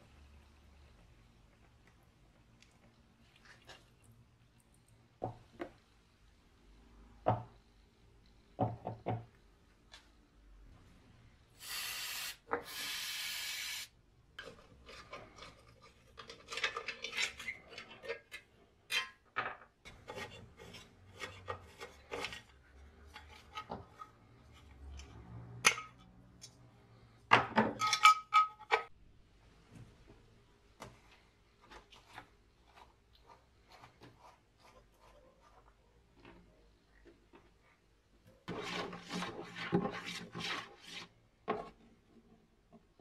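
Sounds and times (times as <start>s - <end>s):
short bursts of hiss: 11.6s - 13.9s.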